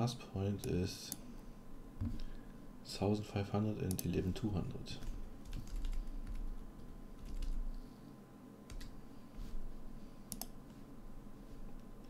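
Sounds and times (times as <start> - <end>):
computer keyboard typing: 5.0 - 7.7, 8.7 - 9.0, 10.3 - 10.6.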